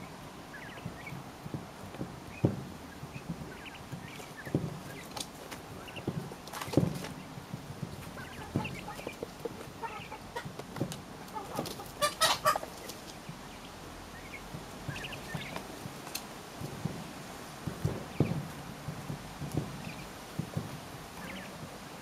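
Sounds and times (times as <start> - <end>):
quail chirping: 0.0 - 1.2, 2.2 - 15.7, 18.1 - 18.5, 19.8 - 20.2, 21.0 - 21.6
quail pecking taps: 0.5 - 17.0, 17.6 - 21.7.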